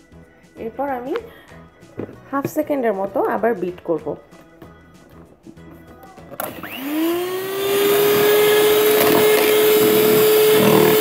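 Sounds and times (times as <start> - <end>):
stand mixer whisking batter: 6.4 - 11.0.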